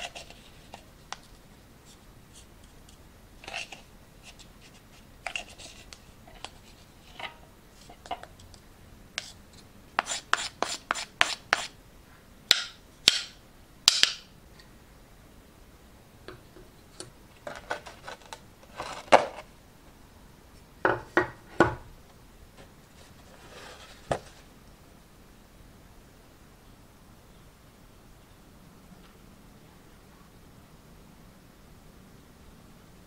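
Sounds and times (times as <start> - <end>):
metal spoon scraping sugar: 2.3 - 8.4, 10.0 - 11.8.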